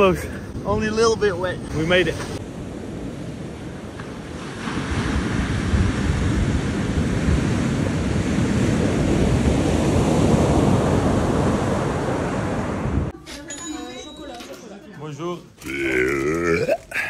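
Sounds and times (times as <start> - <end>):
ocean surf breaking: 0.0 - 13.1
wind buffeting microphone: 0.0 - 13.1.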